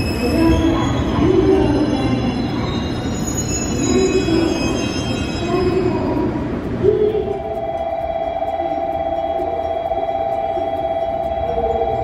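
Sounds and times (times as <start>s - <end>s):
electronic warning tone: 7.2s - 12.0s.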